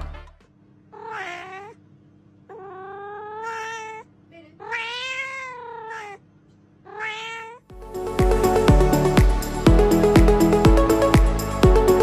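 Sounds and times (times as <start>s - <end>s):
cat meowing: 0.9s - 1.8s, 2.5s - 6.2s, 6.8s - 7.7s.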